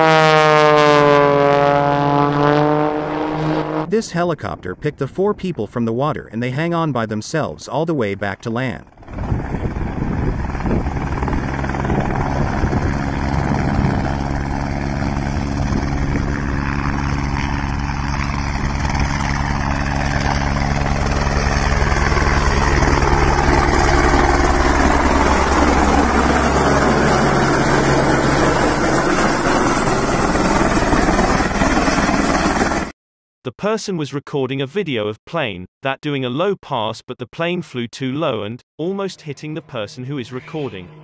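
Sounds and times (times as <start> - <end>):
helicopter rotor and engine: 8.9 - 32.9
downward-sweeping whoosh: 39.2 - 41.0.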